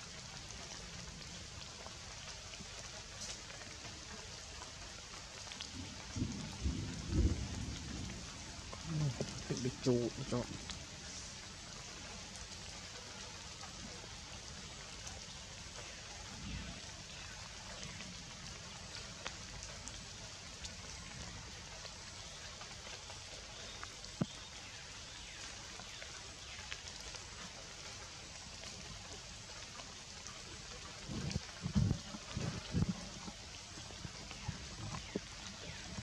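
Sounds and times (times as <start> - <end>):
rain falling through foliage: 0.0 - 36.0
drip ticks: 0.1 - 6.6, 17.1 - 36.0.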